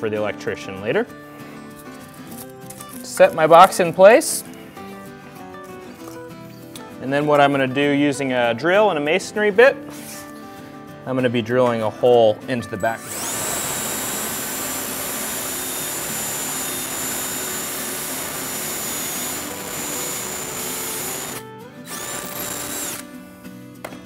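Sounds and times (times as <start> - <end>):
drill boring into concrete: 13.0 - 23.1.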